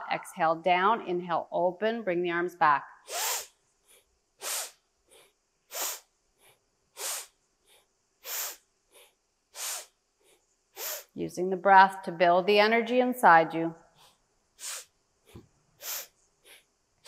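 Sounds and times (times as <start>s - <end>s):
person breathing forcefully: 3.1s - 11.1s, 14.0s - 16.7s.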